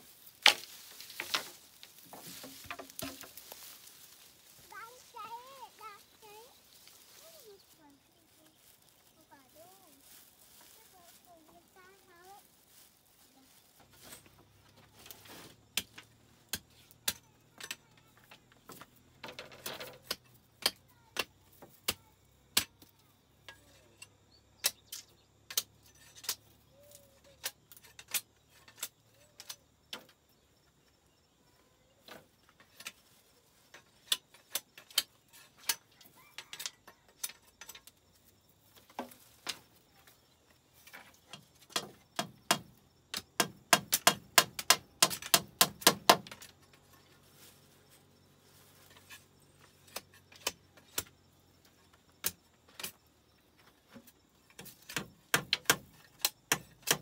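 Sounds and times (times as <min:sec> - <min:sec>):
wooden knocks of bamboo slats: 0:00.4 - 0:03.7, 0:40.8 - 0:46.6, 0:53.9 - 0:57.0.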